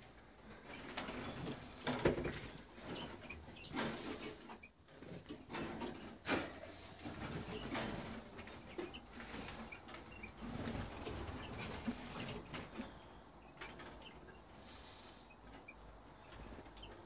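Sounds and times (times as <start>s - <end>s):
birds flapping wings: 10.4s - 12.8s.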